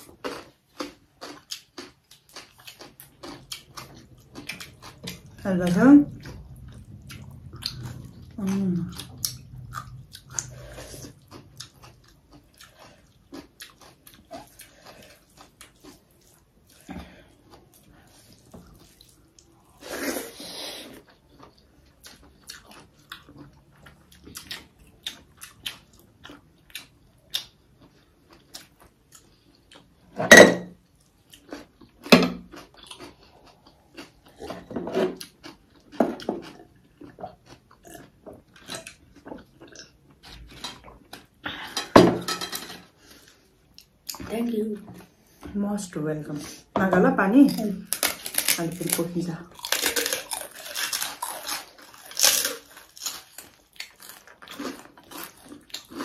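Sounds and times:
chewing and mouth smacks: 0.0 - 5.4, 6.1 - 16.9, 21.0 - 30.0, 31.0 - 41.3, 49.6 - 56.0.

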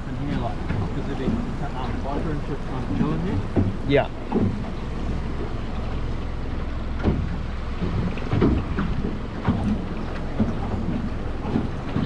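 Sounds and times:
wind buffeting microphone: 0.0 - 12.0
knocks and slaps: 7.0 - 12.0.

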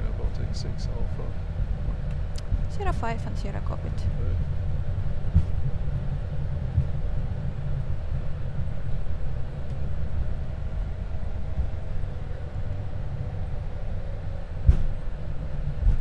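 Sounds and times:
low rumble of idling engines: 0.0 - 16.0
wheels bumping on taxiway: 0.0 - 16.0.

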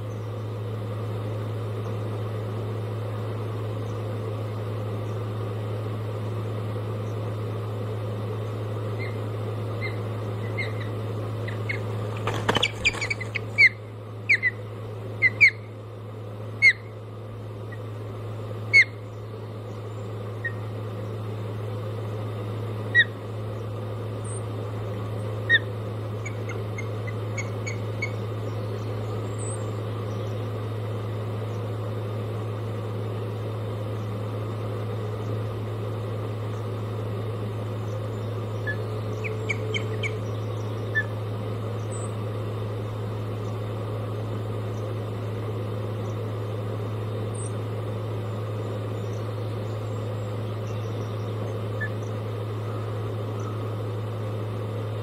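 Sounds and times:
steady low hum: 0.0 - 55.0
osprey whistled chirps: 12.6 - 14.6, 15.2 - 15.7, 18.7 - 19.0, 38.5 - 41.2.

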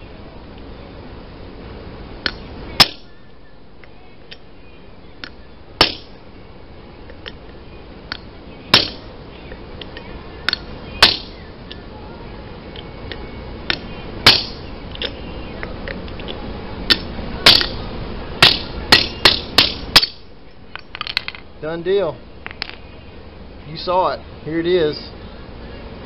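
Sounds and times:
hammer striking steel socket: 2.2 - 3.1, 5.2 - 6.1, 8.1 - 9.0, 9.9 - 11.3, 13.1 - 15.1, 16.9 - 17.8, 18.4 - 21.4.

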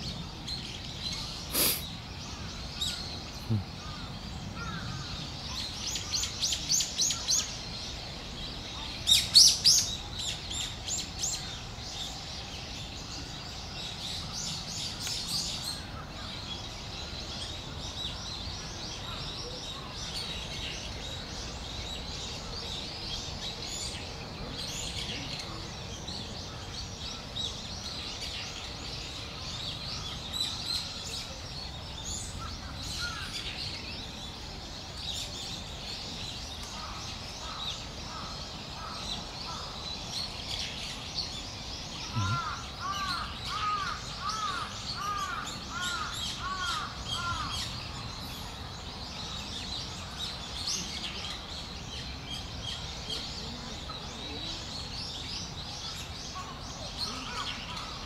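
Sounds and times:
small birds chirping: 0.0 - 58.0
crow cawing: 42.1 - 47.6.

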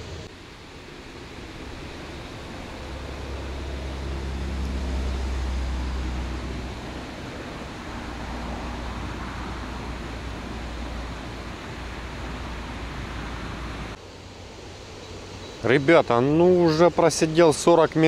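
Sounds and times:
outdoor background noise: 0.0 - 18.0
low rumble: 1.6 - 14.0.

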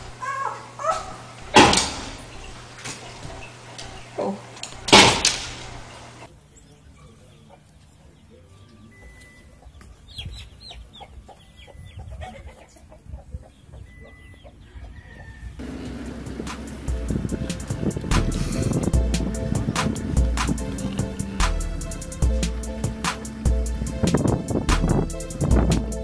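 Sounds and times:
chicks peeping: 6.6 - 15.6
hen clucking: 9.0 - 21.5.

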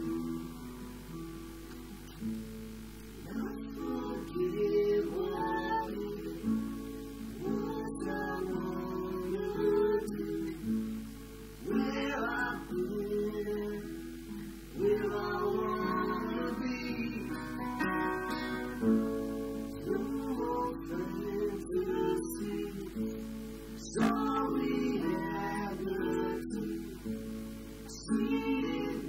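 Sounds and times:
person singing: 0.0 - 1.2, 3.2 - 29.0
acoustic guitar strumming: 0.0 - 29.0.

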